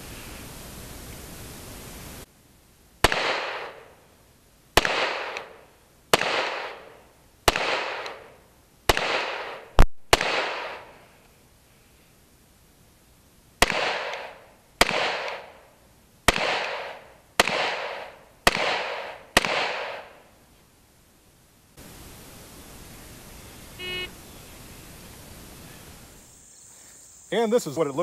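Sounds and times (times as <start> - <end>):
pistol shots echoing: 3.0 - 3.9, 4.8 - 10.9, 13.6 - 15.6, 16.3 - 20.2.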